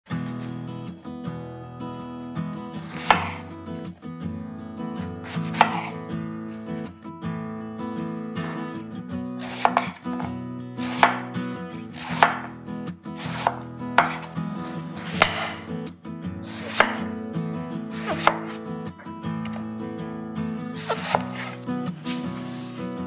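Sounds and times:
knife slicing eggplant: 2.8s - 3.5s, 5.0s - 6.0s, 9.4s - 12.5s, 13.2s - 15.7s, 16.4s - 17.1s, 17.9s - 18.7s, 20.8s - 21.7s
knife knocking on wooden board: 15.2s - 15.6s.

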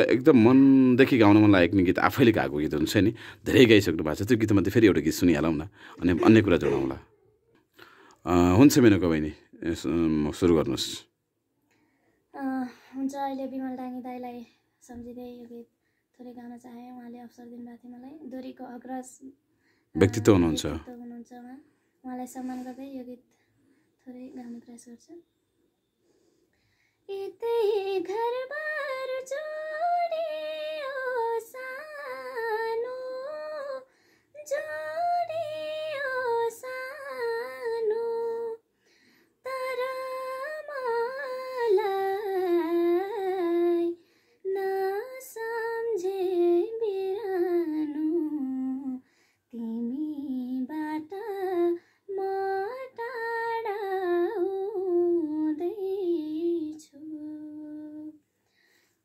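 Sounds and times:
woman singing unaccompanied: 12.3s - 19.4s, 20.0s - 23.4s, 27.1s - 38.7s, 39.4s - 58.2s.

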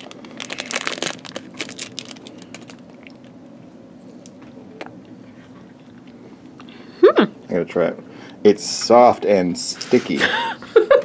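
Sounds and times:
biting and chewing candy: 0.0s - 3.4s
plastic wrapper crinkling: 0.0s - 3.4s.

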